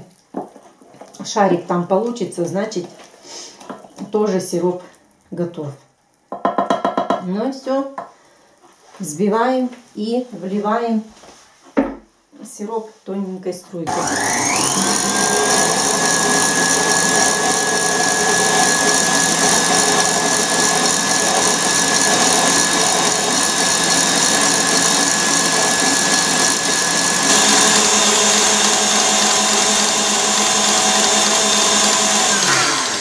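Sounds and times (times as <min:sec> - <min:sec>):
stand mixer motor whine: 0:13.9 - 0:33.0.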